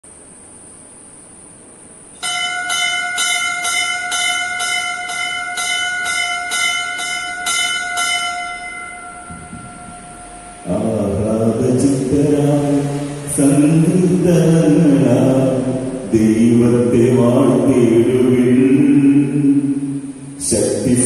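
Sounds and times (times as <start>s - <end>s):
bell struck rapidly: 2.2s - 15.7s.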